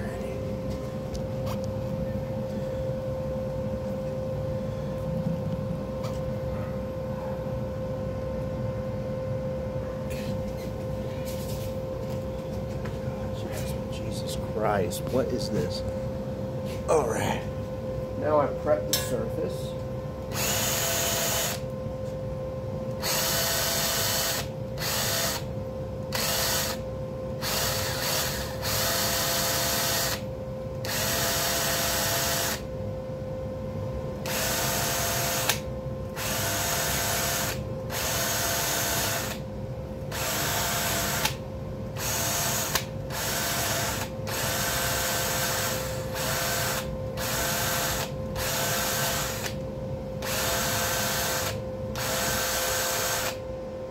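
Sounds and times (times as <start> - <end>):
power tool running: 20.2 - 21.7, 22.9 - 26.8, 27.4 - 32.7, 34.2 - 39.5, 40.1 - 49.6, 50.2 - 53.5.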